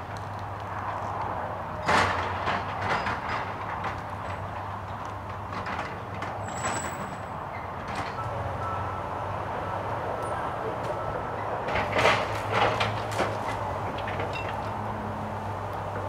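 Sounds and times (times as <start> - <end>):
metallic clanking and squealing: 5.7 - 8.8, 10.2 - 14.7.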